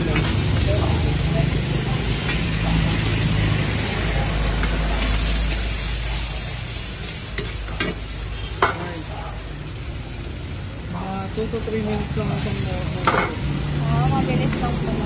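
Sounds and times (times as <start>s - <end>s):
food sizzling in a wok: 0.0s - 15.0s.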